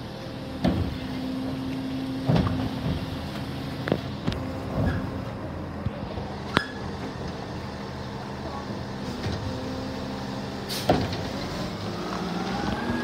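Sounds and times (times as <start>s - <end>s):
garbage truck engine and hydraulics: 0.0s - 13.0s.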